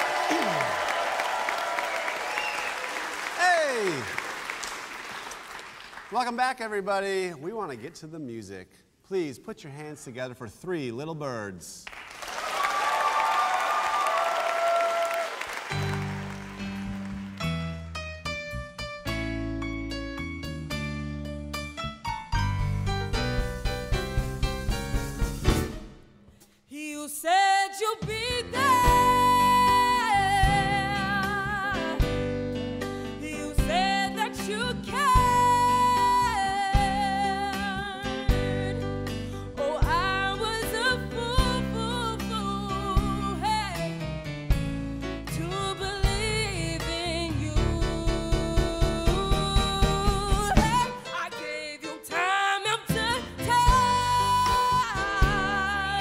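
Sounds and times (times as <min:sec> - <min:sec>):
live band playing: 0:15.6 - 0:26.1, 0:28.0 - 0:52.2, 0:52.8 - 0:56.0
bass guitar: 0:15.7 - 0:25.9, 0:28.4 - 0:51.0, 0:53.0 - 0:56.0
keyboard: 0:15.7 - 0:26.2, 0:28.3 - 0:56.0
drums: 0:21.6 - 0:26.5, 0:27.8 - 0:51.0, 0:52.9 - 0:56.0
female vocals singing: 0:26.7 - 0:32.1, 0:33.2 - 0:38.8, 0:45.3 - 0:56.0.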